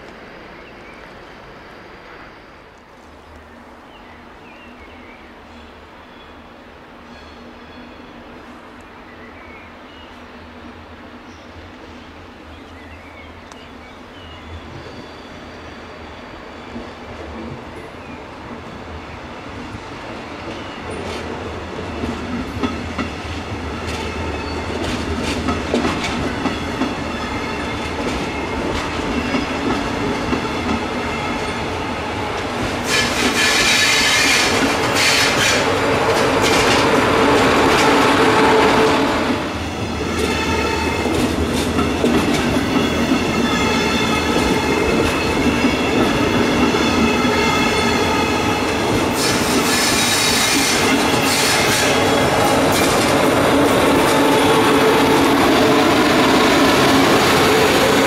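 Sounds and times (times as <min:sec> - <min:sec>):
locomotive hiss and whine: 0:00.0 - 0:04.5
train passing at speed: 0:00.0 - 0:58.0.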